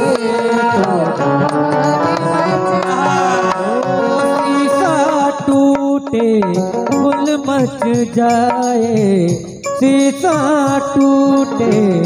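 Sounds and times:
harmonium melody: 0:00.0 - 0:08.6.

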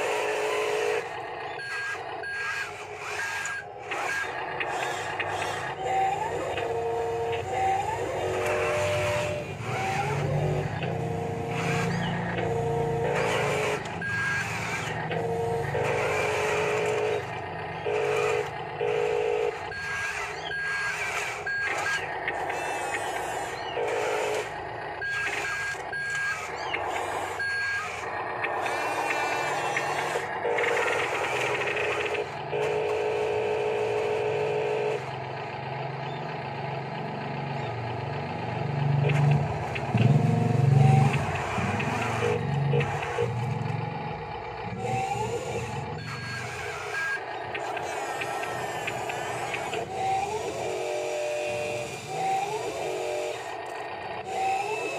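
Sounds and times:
toy engine hum: 0:00.0 - 0:54.9
reversing beeps: 0:01.6 - 0:02.6, 0:25.0 - 0:26.5, 0:27.4 - 0:28.0, 0:46.0 - 0:47.2.

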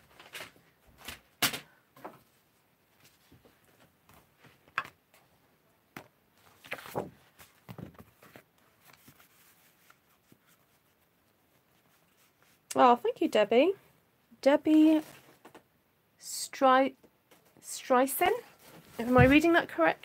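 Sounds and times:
paper rustling: 0:06.4 - 0:12.6, 0:18.4 - 0:19.9.

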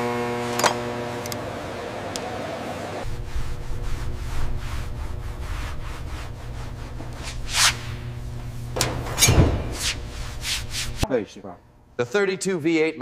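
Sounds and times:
low steady hum: 0:00.0 - 0:12.0
rag rubbing on car paint: 0:03.0 - 0:08.3, 0:09.6 - 0:11.0.

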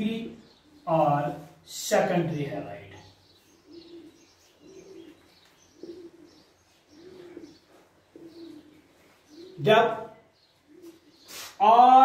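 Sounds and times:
pigeon cooing: 0:03.0 - 0:11.8.

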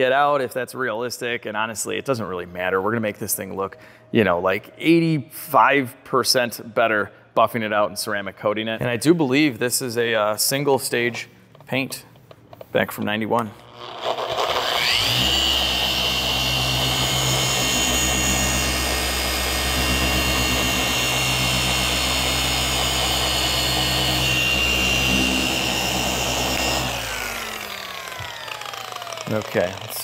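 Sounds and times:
electric polisher whining: 0:13.6 - 0:30.0.

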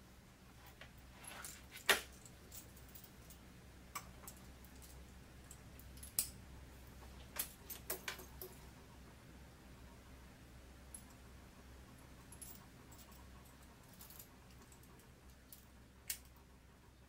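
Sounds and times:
metal leash hardware clinking: 0:01.2 - 0:06.4, 0:07.3 - 0:08.6, 0:12.3 - 0:16.4.

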